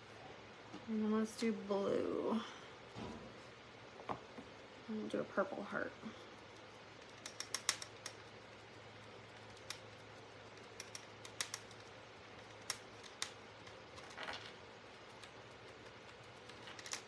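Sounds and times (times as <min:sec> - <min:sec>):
fingers clicking wooden piece: 0:07.0 - 0:08.2.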